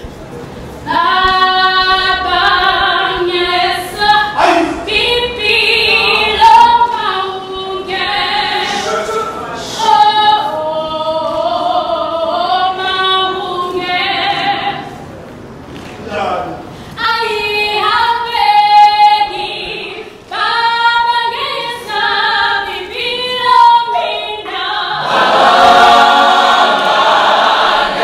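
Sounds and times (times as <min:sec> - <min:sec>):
gospel choir singing: 0:00.9 - 0:15.0, 0:17.0 - 0:28.0.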